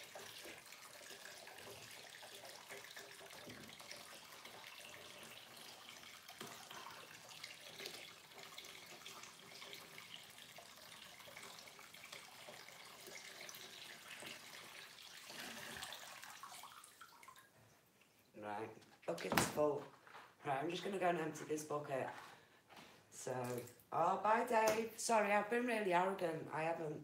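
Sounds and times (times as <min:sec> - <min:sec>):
water trickling into bucket: 0:00.0 - 0:19.1.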